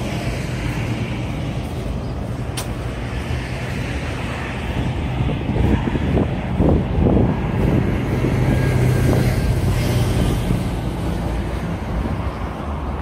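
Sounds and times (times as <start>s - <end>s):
outdoor noise: 0.0s - 13.0s.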